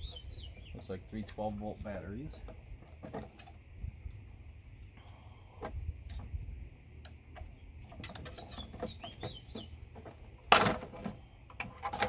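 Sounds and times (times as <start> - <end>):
bird chirping: 0.0 - 1.0, 7.5 - 9.9
plastic clatter: 7.9 - 12.0.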